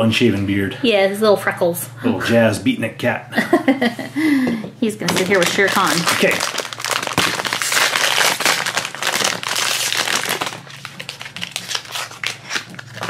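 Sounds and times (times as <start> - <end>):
foil bag crinkling: 5.0 - 13.0.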